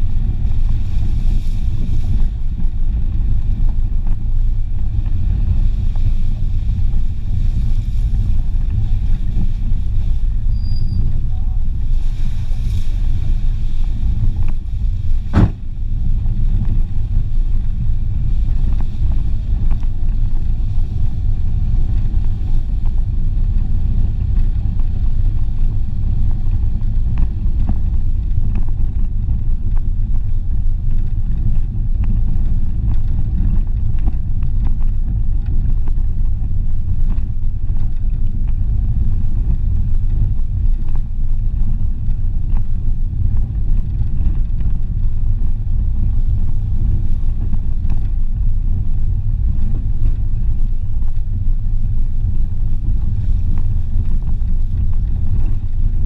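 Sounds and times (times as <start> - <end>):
car rumbling on dirt road: 0.0 - 56.0
sharp knock: 15.3 - 15.6.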